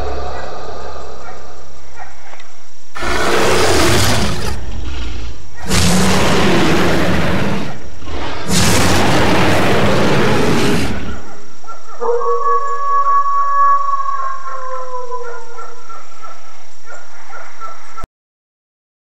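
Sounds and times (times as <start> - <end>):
monster roaring: 3.0 - 11.3.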